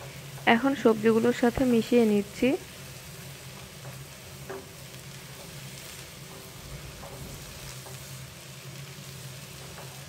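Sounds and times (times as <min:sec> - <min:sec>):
vegetables sizzling in a frying pan: 0:00.0 - 0:10.0
spatula scraping and tapping pan: 0:03.2 - 0:10.0.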